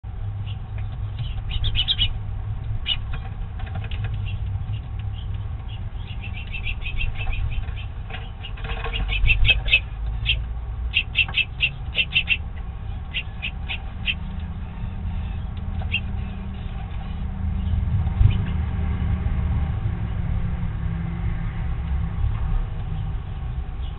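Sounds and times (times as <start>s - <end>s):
steady low rumble: 0.0s - 23.9s
small songbirds chirping: 0.1s - 18.8s, 21.8s - 23.9s.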